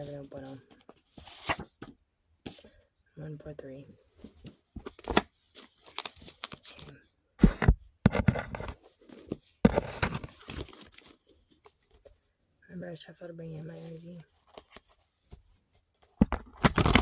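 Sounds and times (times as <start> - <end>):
paper cards rustling and sliding: 0.0 - 1.9, 4.3 - 7.0, 8.1 - 12.1.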